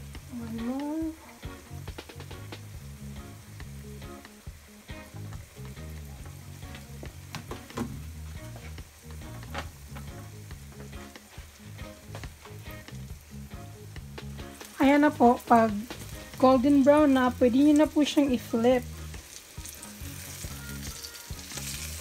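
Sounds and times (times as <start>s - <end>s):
food sizzling in hot oil: 0.0s - 22.0s
oil crackling and popping: 5.1s - 13.4s, 14.0s - 22.0s.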